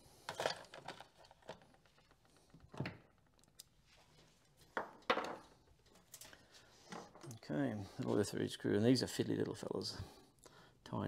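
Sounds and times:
soft knocks and rustles of tools: 0:00.3 - 0:07.4.

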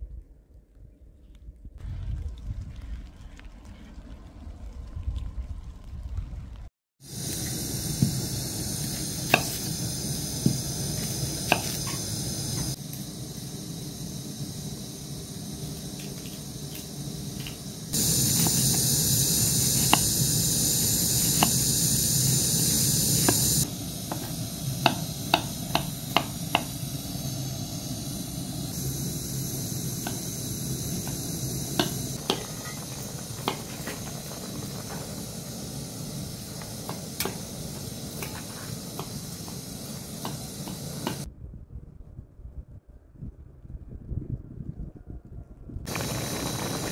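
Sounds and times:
gas burner hiss: 0:07.0 - 0:41.3, 0:45.9 - 0:46.9.

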